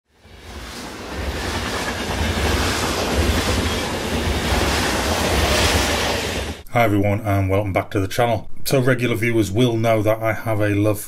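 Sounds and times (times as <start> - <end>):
wheels clicking along track: 0.9 - 6.6.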